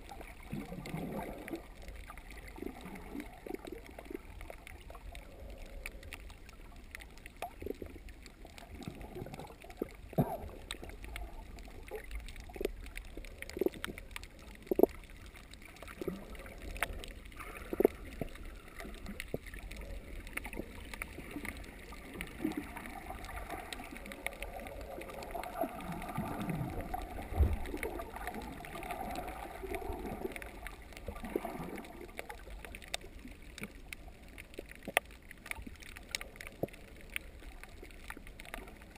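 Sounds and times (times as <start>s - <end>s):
low underwater rumble: 0.0s - 38.9s.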